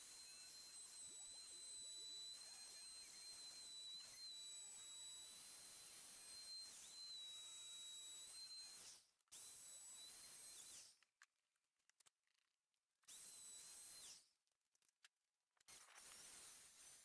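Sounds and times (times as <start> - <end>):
router motor whine: 0.0 - 10.9, 13.1 - 14.2, 15.7 - 17.0.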